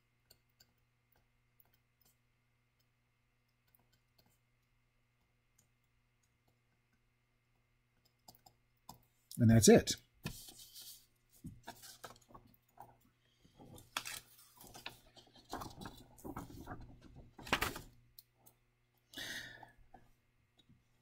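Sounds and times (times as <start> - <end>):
faint clicks and knocks: 0.2 - 9.1.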